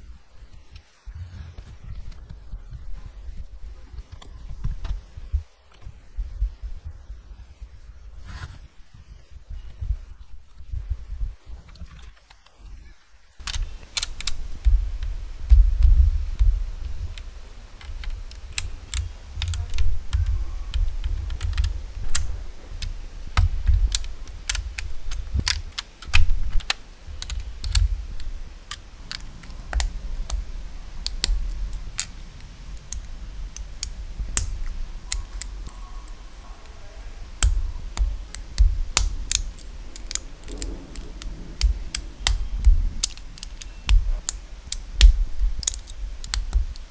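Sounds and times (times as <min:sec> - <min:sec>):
dull low thumps: 0:01.0 - 0:11.9, 0:13.4 - 0:46.9
plastic bricks clicking: 0:13.4 - 0:46.9.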